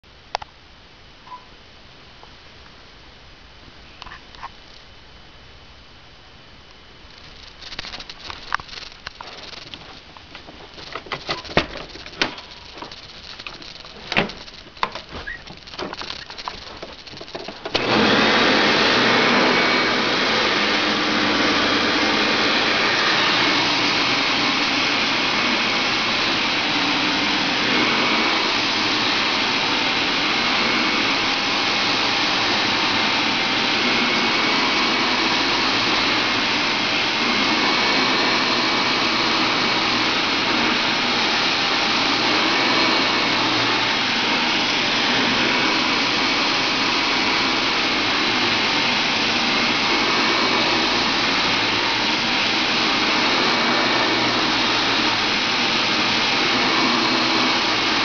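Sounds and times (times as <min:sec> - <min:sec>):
vacuum cleaner running on carpet: 0:07.6 - 0:58.0.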